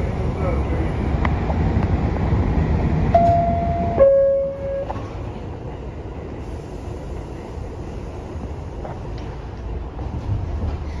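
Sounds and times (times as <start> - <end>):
train low rumble: 0.0 - 11.0
two-tone door closing chime: 3.2 - 5.0.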